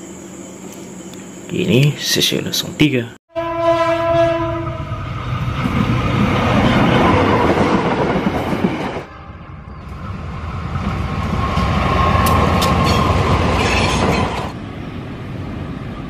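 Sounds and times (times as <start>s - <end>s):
freight train passing: 0.0s - 16.0s
train approaching: 0.0s - 16.0s
diesel locomotive horn: 3.3s - 5.4s, 9.0s - 9.7s.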